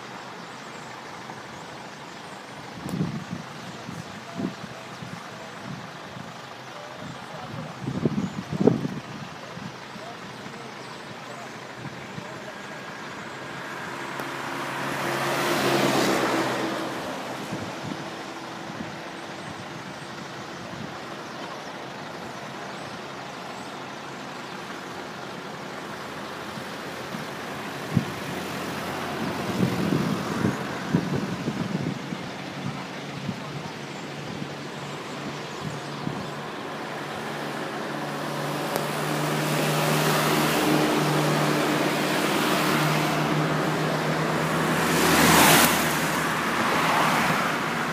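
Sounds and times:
road traffic rush: 0.0 - 47.9
vehicle passing: 13.5 - 18.2, 35.1 - 47.9.

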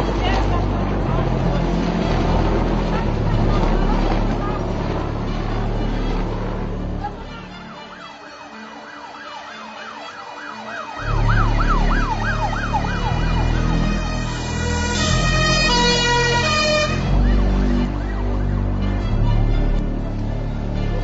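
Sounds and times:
low rumble: 0.0 - 7.7, 11.0 - 21.0
emergency siren yelping: 7.1 - 19.0.

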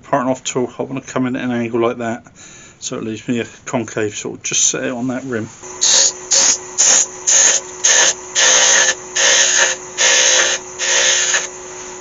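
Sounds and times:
lathe humming: 5.4 - 12.0
tool cutting wood on lathe: 5.8 - 11.6.

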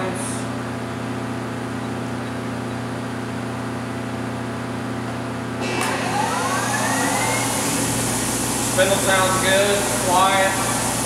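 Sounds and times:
lathe humming: 5.6 - 11.0
spindle spinning up whine: 5.6 - 11.0.

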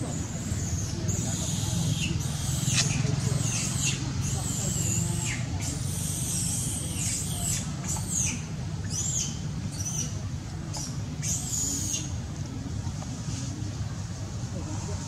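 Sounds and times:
baby monkey squealing: 0.2 - 10.2, 10.8 - 12.1.

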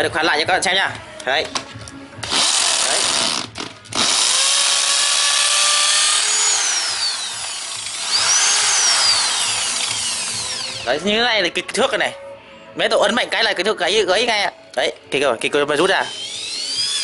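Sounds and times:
hammer drill drilling into concrete: 2.3 - 11.0, 16.0 - 17.0.

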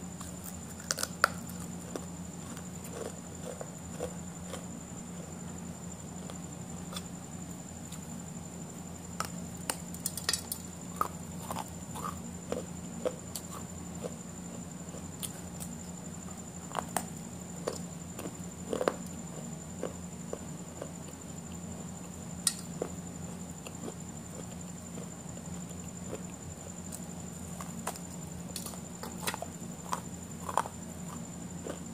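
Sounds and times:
low background hum: 0.0 - 31.9
soft food crunches: 0.2 - 4.7, 9.2 - 14.2, 14.9 - 23.0, 23.6 - 31.9
wet chewing: 28.6 - 31.8.

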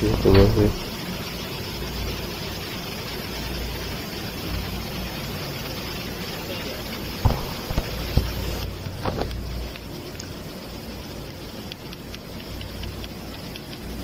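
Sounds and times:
background hum: 0.0 - 14.0
sharp knocks on valve gearbox: 7.2 - 8.4.

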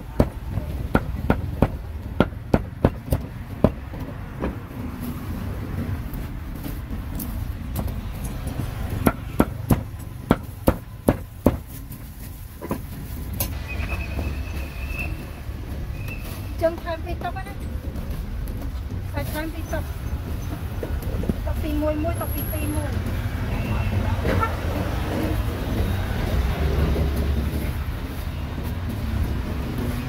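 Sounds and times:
cleaver chopping on a block: 9.0 - 11.6.

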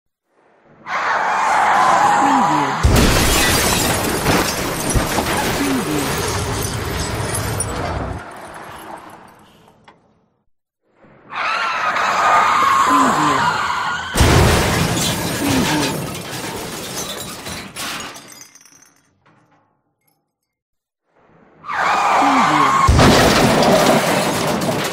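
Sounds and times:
breaking glass: 2.8 - 9.3, 14.2 - 19.5, 22.8 - 24.9
crunching metal: 2.8 - 9.9, 14.1 - 20.5, 22.6 - 24.9
tyres screeching: 21.7 - 23.8.

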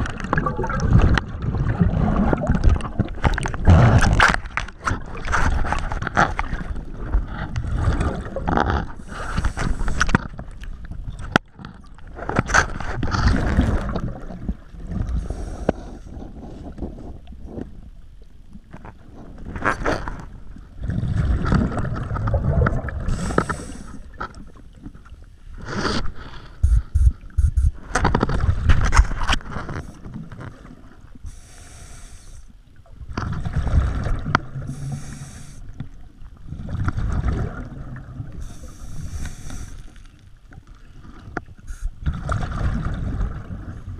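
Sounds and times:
exhaled bubbles gurgling: 0.0 - 12.2, 12.8 - 17.6, 19.4 - 25.0, 32.8 - 39.8, 40.9 - 43.9
regulator inhale hiss: 15.2 - 16.1, 23.1 - 24.1, 31.3 - 32.6, 34.7 - 35.8, 38.4 - 40.1, 41.7 - 42.0.

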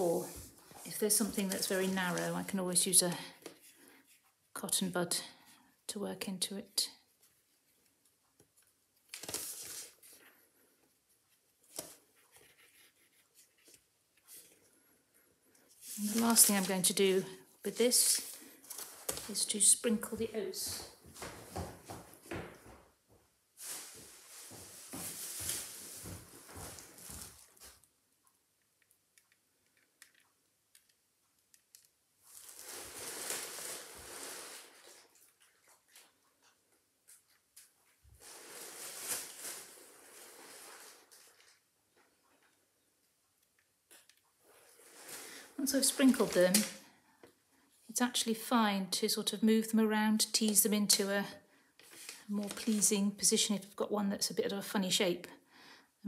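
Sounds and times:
dry oats rustling and crackling: 15.8 - 17.0, 32.2 - 36.1.

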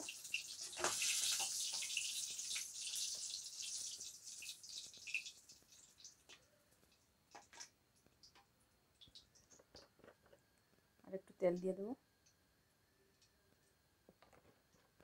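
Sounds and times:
hot oil sizzling: 0.0 - 6.4.

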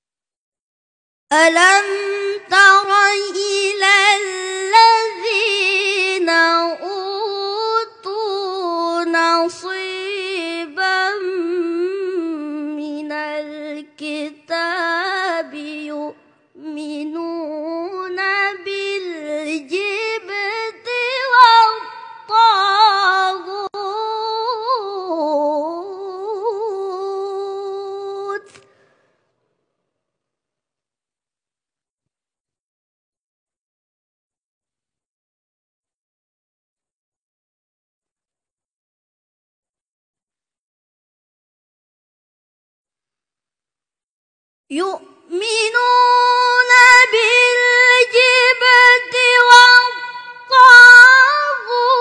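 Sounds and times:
boy reciting melodically: 1.3 - 28.6, 44.7 - 52.0.

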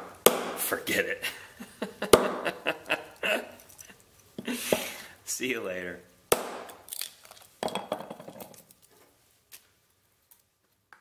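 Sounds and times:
hatchet chopping wood: 0.0 - 0.6, 2.1 - 2.5, 6.3 - 6.9.

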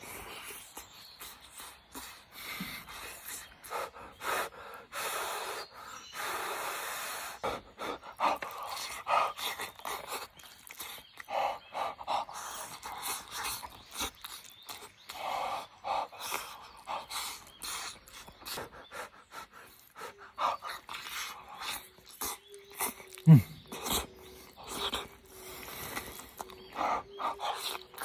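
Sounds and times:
breathy puffs of breath: 0.0 - 10.1, 23.2 - 27.9
mouth clicks: 0.1 - 28.0
slurping: 6.5 - 28.0
wet chewing: 7.4 - 28.0.

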